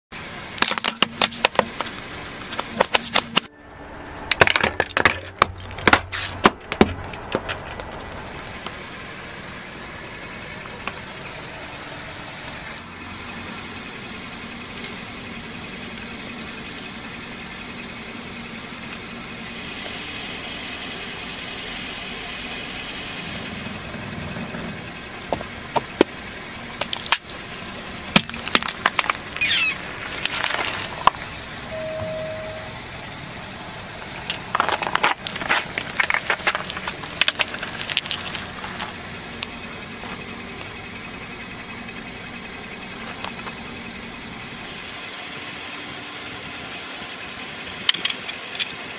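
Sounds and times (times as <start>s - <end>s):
plastic cracking under car tyre: 0.6s - 3.5s, 4.3s - 8.8s, 26.8s - 31.3s, 34.0s - 39.5s.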